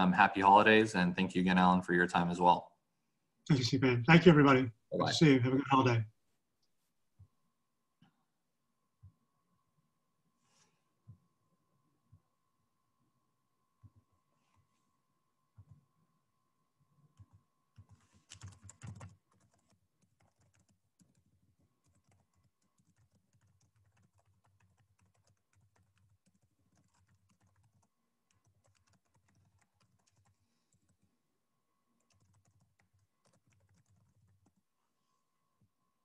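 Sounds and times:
typing on computer keyboard: 17.1 - 31.1, 32.0 - 34.6.

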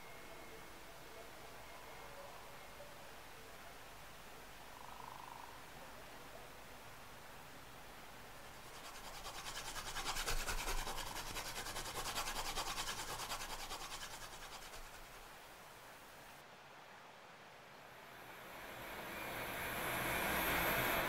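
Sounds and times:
pencil shading on paper: 8.7 - 15.3.

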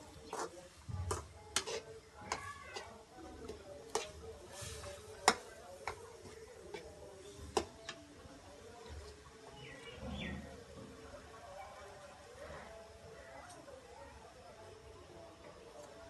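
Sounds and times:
metal spatula scraping a pan: 0.3 - 6.9.

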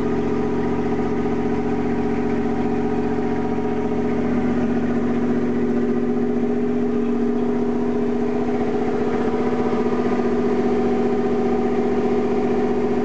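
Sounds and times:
boat engine running steadily: 0.0 - 13.0.

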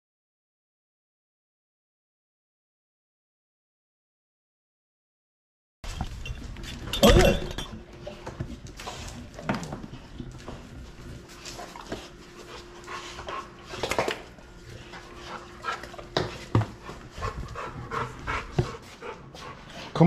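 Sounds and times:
dogs panting: 8.0 - 20.0.

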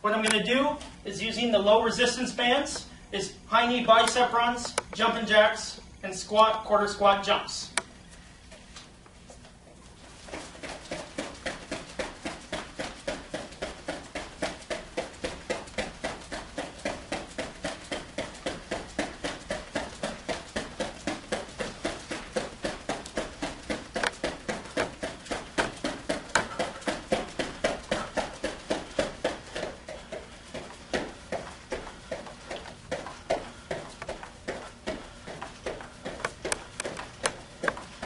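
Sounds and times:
bare feet on gym mat: 3.5 - 38.0.

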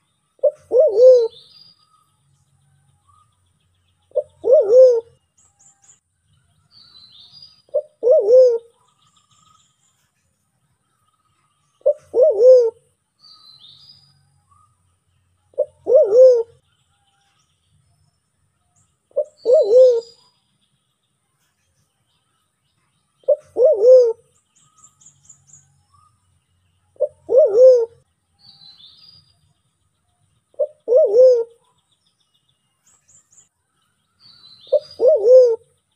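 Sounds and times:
small birds chirping: 0.0 - 35.9
pigeon cooing: 0.4 - 1.4, 4.1 - 5.2, 7.7 - 8.7, 11.8 - 12.8, 15.6 - 16.6, 19.2 - 20.2, 23.3 - 24.3, 27.0 - 28.0, 30.6 - 31.6, 34.7 - 35.7.

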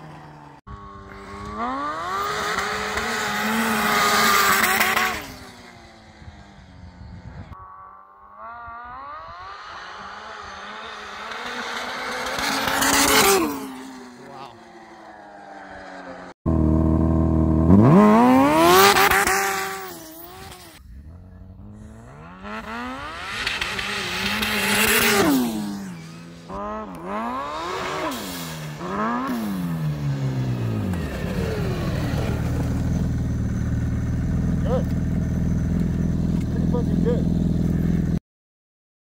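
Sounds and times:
snowmobile engine revving: 0.0 - 6.7, 7.5 - 38.2
snowmobile engine idling: 30.1 - 38.2.

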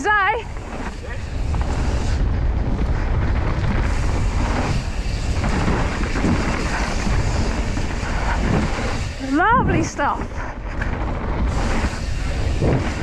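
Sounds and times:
bike tyres rolling on dirt: 0.0 - 13.0
wind on microphone: 0.0 - 13.0.

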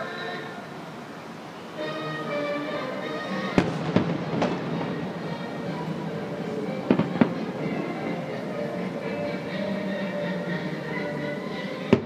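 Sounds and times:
steady music: 1.8 - 12.0
firework bangs: 3.5 - 8.4.

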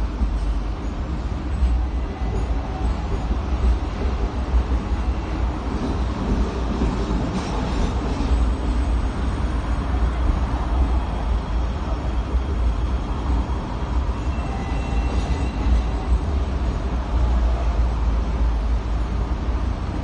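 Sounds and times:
tram wheels rumbling on rails: 0.0 - 20.0.

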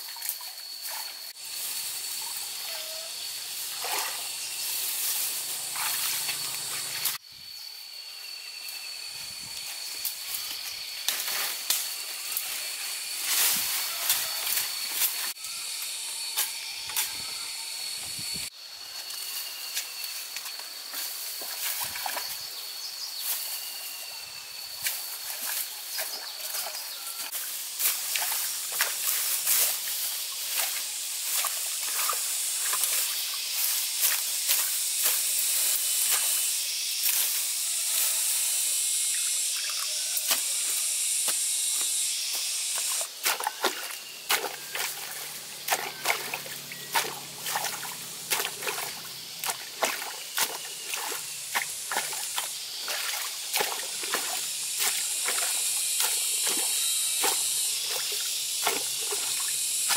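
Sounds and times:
leaves rustling and crackling: 3.4 - 7.2, 24.9 - 38.5, 42.9 - 59.9
hoe chopping vegetation: 42.8 - 59.9
muddy water sloshing: 43.2 - 59.9.

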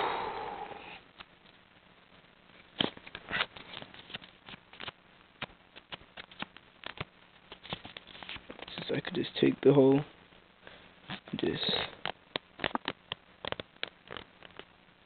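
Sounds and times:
paper rustling and crinkling: 2.8 - 8.9.

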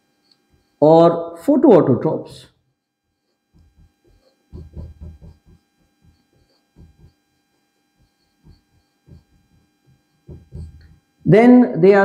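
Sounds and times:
low electrical hum: 0.0 - 12.0
marker writing on whiteboard: 3.1 - 7.2, 8.0 - 11.0.

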